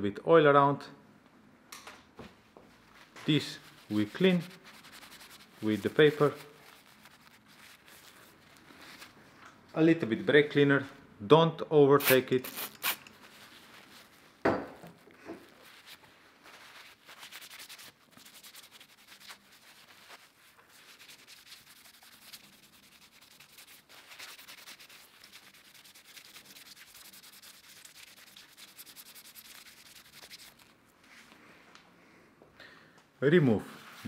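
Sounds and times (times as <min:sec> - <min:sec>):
paper towel wiping plastic: 0:02.8 - 0:09.2, 0:12.0 - 0:14.4, 0:15.4 - 0:30.8, 0:33.4 - 0:34.0.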